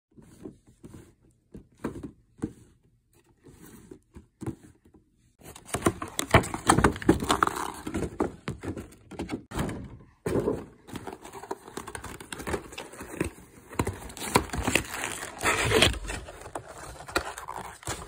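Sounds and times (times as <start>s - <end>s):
box rustling and scraping: 5.4s - 18.0s.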